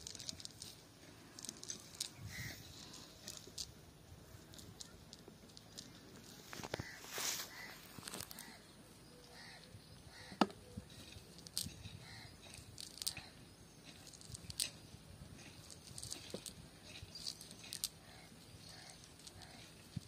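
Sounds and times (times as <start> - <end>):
cast net rustling and clicking: 0.0 - 3.8, 4.4 - 8.6.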